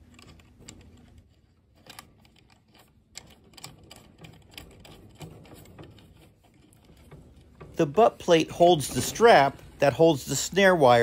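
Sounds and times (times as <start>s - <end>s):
small screw clicking and ticking: 0.0s - 7.8s.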